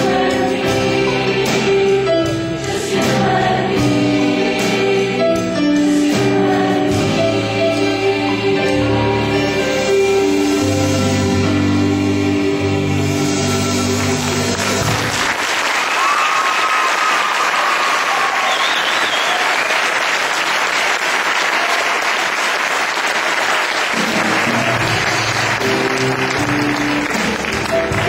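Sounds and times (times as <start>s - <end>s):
music: 0.0s - 16.0s, 23.7s - 28.0s
audience applause: 13.9s - 28.0s
whistles: 18.2s - 19.7s.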